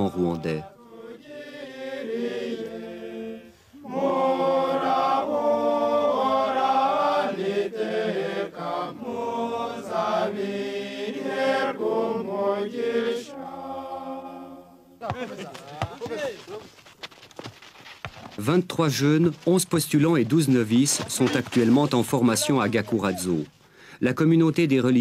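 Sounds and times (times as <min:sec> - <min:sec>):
men singing unaccompanied: 0:00.0 - 0:14.8.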